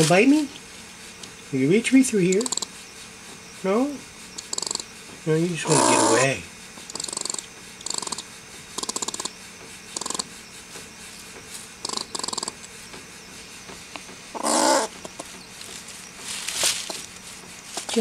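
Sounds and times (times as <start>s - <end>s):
squirrel chattering: 2.2s - 2.8s, 4.4s - 4.9s, 5.6s - 10.3s, 11.8s - 12.6s, 14.3s - 15.3s
wavering squirrel call: 5.6s - 8.2s, 10.0s - 10.3s, 14.3s - 15.3s.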